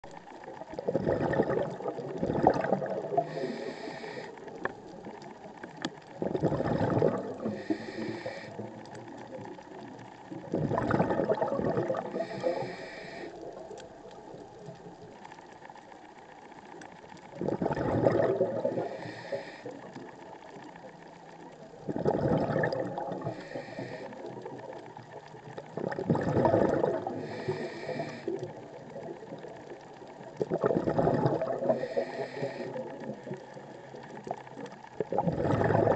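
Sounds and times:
bubbling underwater exhalations: 0.6s - 3.8s, 6.1s - 12.8s, 17.3s - 19.4s, 21.7s - 24.7s, 25.5s - 29.6s, 30.2s - 33.5s, 34.2s - 35.9s
regulator inhalation hiss: 3.2s - 4.6s, 7.6s - 8.7s, 12.2s - 13.5s, 18.8s - 19.8s, 23.2s - 24.3s, 27.2s - 28.4s, 31.7s - 32.9s.

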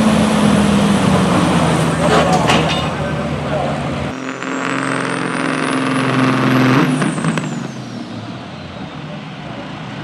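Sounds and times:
diesel truck engine at full throttle: 0.0s - 10.0s
turbocharger whistle: 4.2s - 9.0s.

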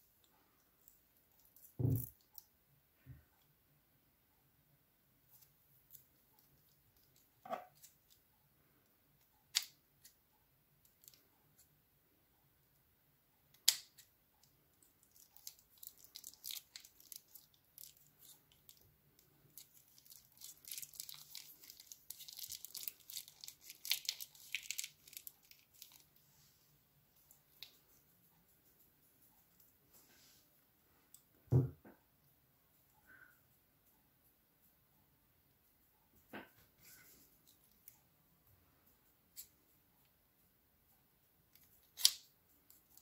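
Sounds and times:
plastic bag crinkling: 15.0s - 18.8s, 19.4s - 26.2s.

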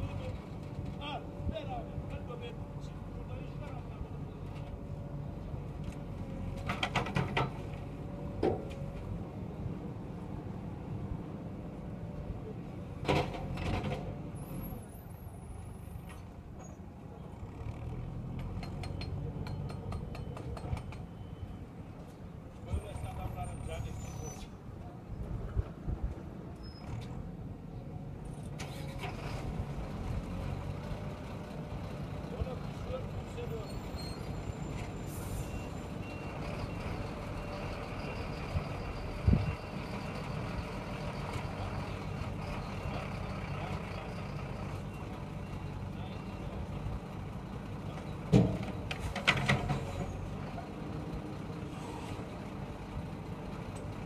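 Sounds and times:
diesel engines running: 0.0s - 54.0s
diesel engine running: 28.8s - 54.0s.

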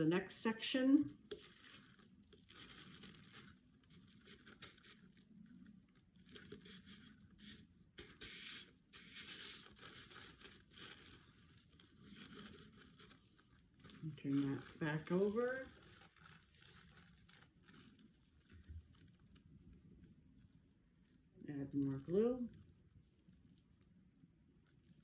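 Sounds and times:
tissue paper rustling: 1.1s - 19.5s.

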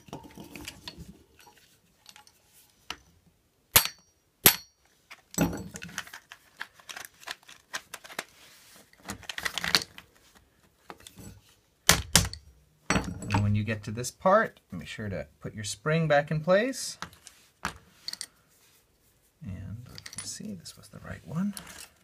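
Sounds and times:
metal parts clattering: 0.0s - 2.4s, 19.9s - 20.4s.

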